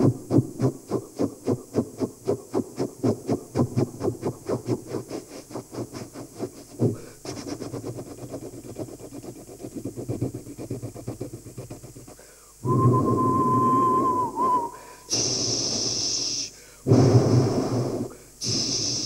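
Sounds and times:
man imitating train chuffing: 0.0s - 8.6s, 9.6s - 19.0s
train whistle imitation: 12.6s - 16.4s.

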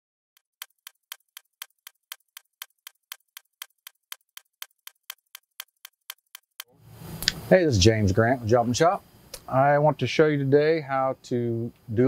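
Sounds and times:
stopwatch ticking: 0.4s - 6.7s.

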